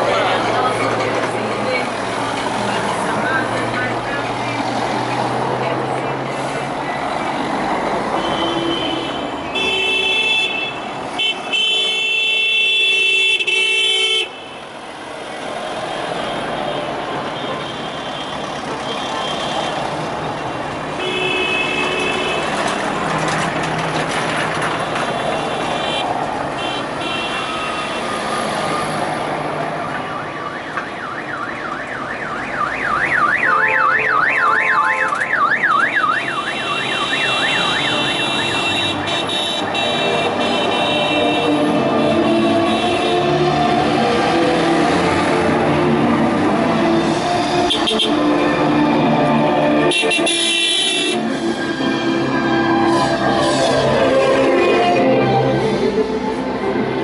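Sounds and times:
cars passing slowly: 0.0 - 9.6, 14.4 - 57.0
car horns honking: 8.2 - 14.7, 21.0 - 22.6, 25.3 - 28.1, 33.1 - 44.0, 47.6 - 48.7, 49.8 - 51.4
warbling electronic siren: 30.2 - 38.3.

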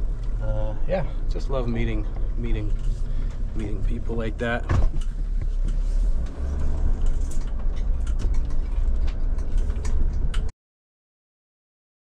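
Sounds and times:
van engine rumble: 0.0 - 10.5
clicks and rattles: 7.0 - 10.5.

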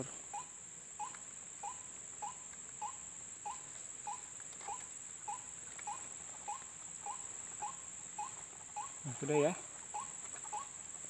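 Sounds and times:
bird calling kwak: 0.0 - 10.8
high-pitched insect drone: 0.0 - 10.8.

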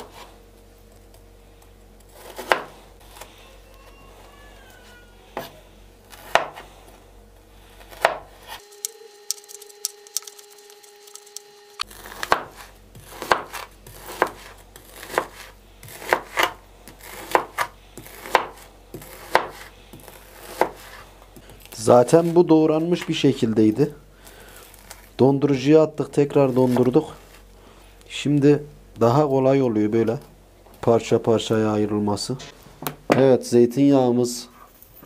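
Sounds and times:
knife chopping on plastic board: 2.2 - 2.8, 6.2 - 6.6, 7.9 - 8.3, 12.0 - 21.6.

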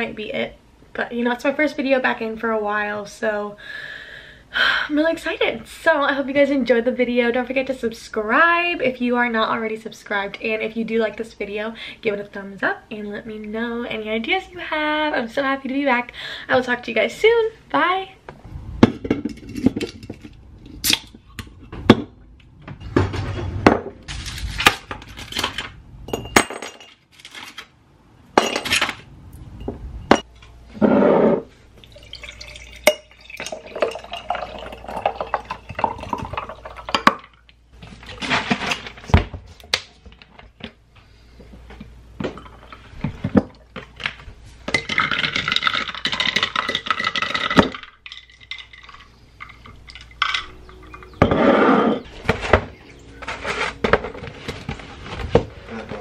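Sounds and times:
drink can opening: 20.8 - 21.2
liquid pouring into glass jar: 31.8 - 37.1.

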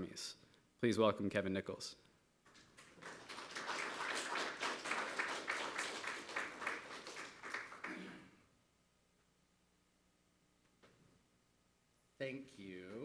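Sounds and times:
audience applauding: 2.8 - 8.1.

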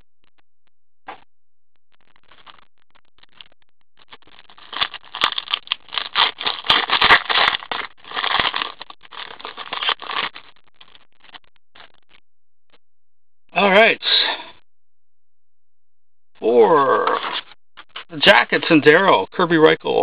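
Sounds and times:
foil wrapper crinkling and tearing: 4.1 - 10.5.

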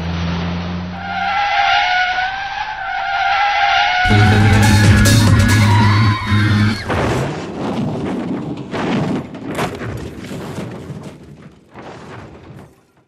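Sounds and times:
music: 4.1 - 6.9
rush of noise: 4.1 - 7.8
car crash impact: 6.8 - 12.7.

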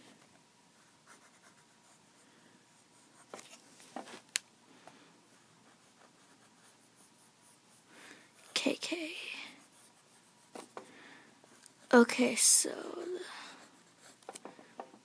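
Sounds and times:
pencil scratching on paper: 0.8 - 3.6, 5.3 - 10.9, 11.5 - 14.4.

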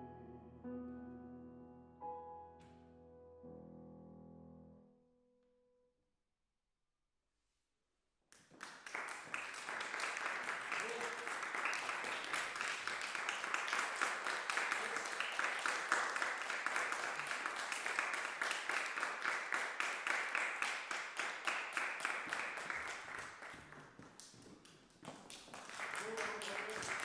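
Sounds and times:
audience applauding: 8.4 - 27.0.

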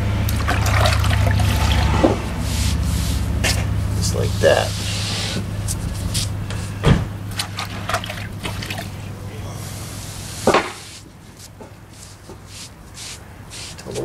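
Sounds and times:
low steady hum: 0.0 - 14.0
wet sponge scrubbing stone: 10.9 - 14.0.

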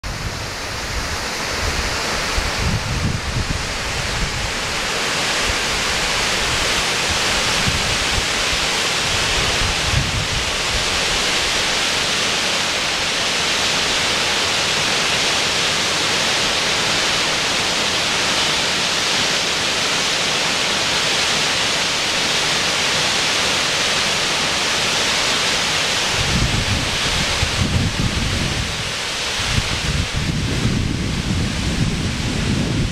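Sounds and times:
wind buffeting microphone: 0.0 - 11.4, 26.0 - 32.9
waterfall rushing: 0.0 - 32.9.

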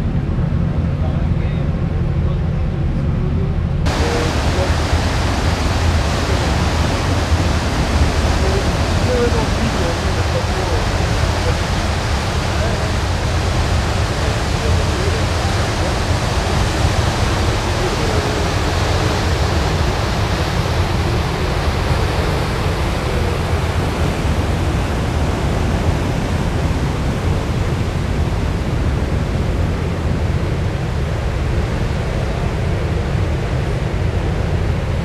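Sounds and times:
wind buffeting microphone: 0.0 - 35.0
sea wash: 3.8 - 35.0.

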